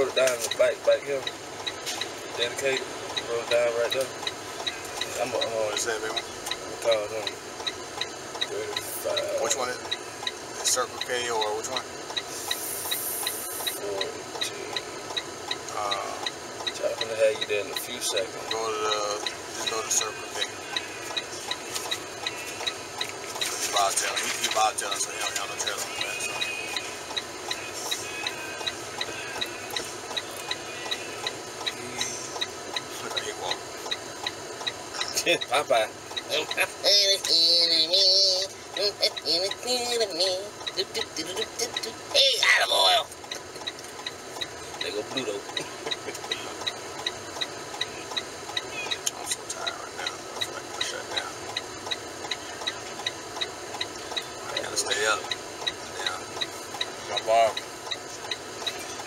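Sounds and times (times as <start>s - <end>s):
truck engine and road hum: 0.0s - 59.0s
turn signal flasher clicking: 0.0s - 59.0s.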